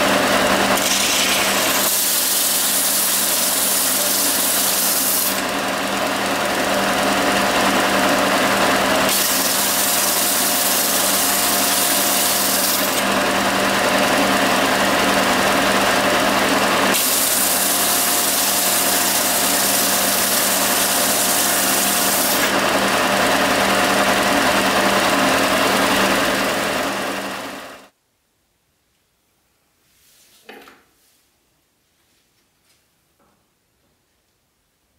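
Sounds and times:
belt sander rasping: 0.0s - 27.7s.

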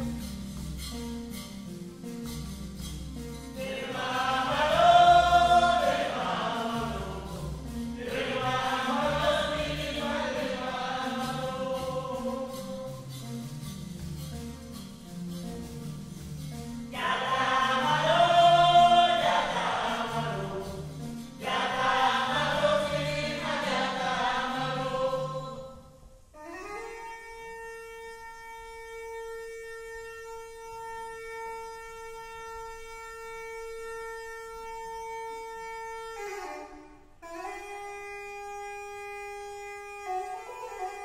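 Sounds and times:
choir singing: 3.6s - 13.1s, 16.9s - 25.8s
wind instrument long note: 17.0s - 41.0s.

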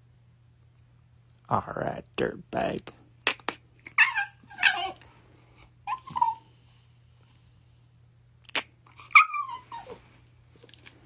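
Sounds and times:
dog whining: 3.8s - 5.1s, 5.8s - 7.0s, 8.9s - 10.2s.

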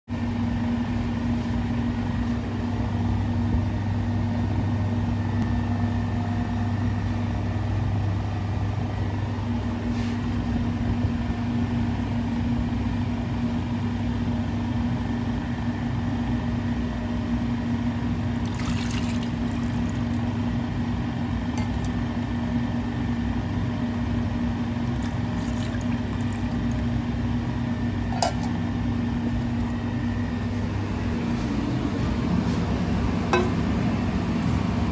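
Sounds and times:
low machine hum: 0.1s - 34.9s
liquid pouring into saucepan: 18.4s - 20.4s, 24.9s - 27.0s.

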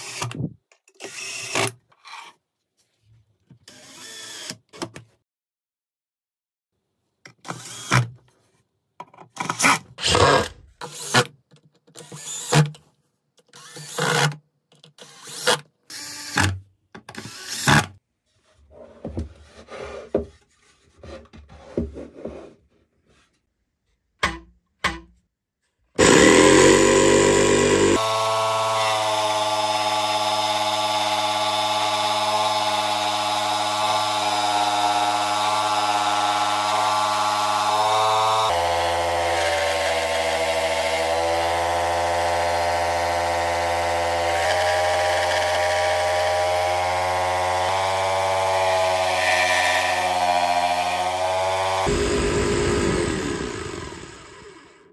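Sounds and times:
cordless drill driving screws: 1.0s - 1.7s, 3.7s - 4.8s, 7.4s - 8.0s, 12.0s - 12.7s, 13.5s - 14.4s, 15.0s - 16.5s, 17.2s - 17.9s, 26.0s - 54.8s
jigsaw cutting wood: 3.7s - 4.7s, 10.0s - 11.3s, 12.0s - 12.7s, 13.5s - 14.4s, 15.0s - 17.9s, 26.0s - 54.9s.

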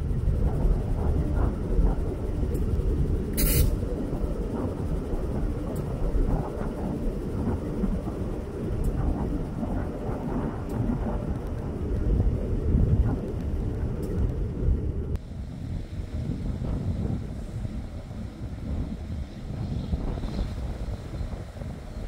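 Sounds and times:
idling vehicles rumbling: 0.0s - 22.0s
short burst of hiss: 3.4s - 3.8s.

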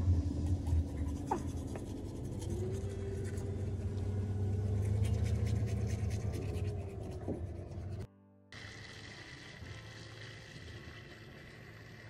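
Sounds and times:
steady low hum: 0.0s - 8.1s
toothbrush scrubbing teeth: 0.4s - 3.5s, 4.7s - 8.0s.

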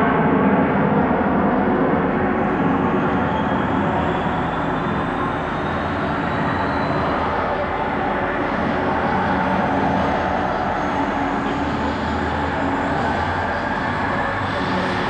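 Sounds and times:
faint high whine rising in pitch: 2.0s - 15.0s.

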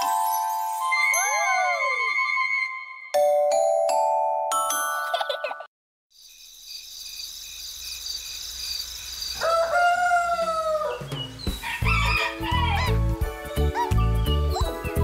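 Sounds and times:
rooster crowing: 9.4s - 13.0s
children's music with bass beat: 11.5s - 15.0s.

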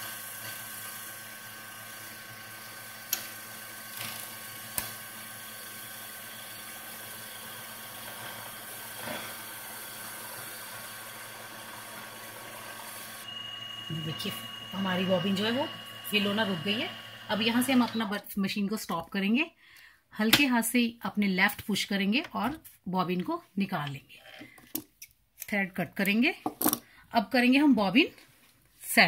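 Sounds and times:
sewing machine motor whirring: 0.0s - 18.1s.

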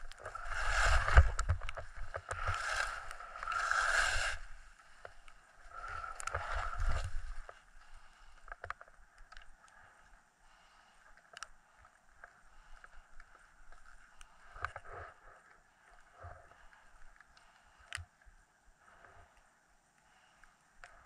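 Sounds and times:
skis swishing on snow: 0.0s - 5.0s
ski clicks and knocks: 0.0s - 7.6s.

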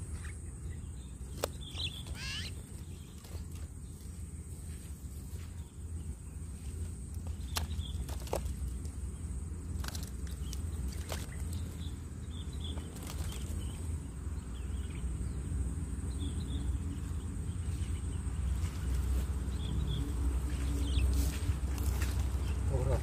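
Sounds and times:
high-pitched insect drone: 2.0s - 2.7s.

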